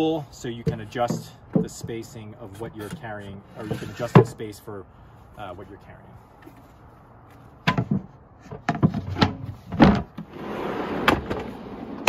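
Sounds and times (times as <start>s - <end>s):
wooden boards knocking: 0.6s - 2.1s, 7.6s - 10.2s
drawer rolling on metal slides: 9.0s - 12.0s.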